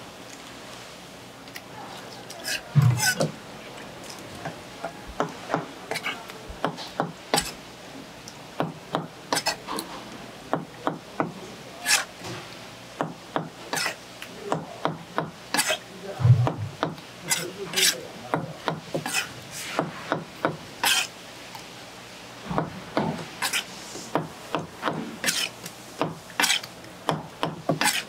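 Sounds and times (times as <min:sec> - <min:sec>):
knife striking cutting board: 0:02.8 - 0:03.3.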